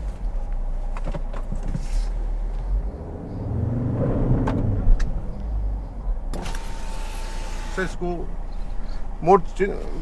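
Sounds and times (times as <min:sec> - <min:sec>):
diesel engine revving: 0:01.8 - 0:09.0.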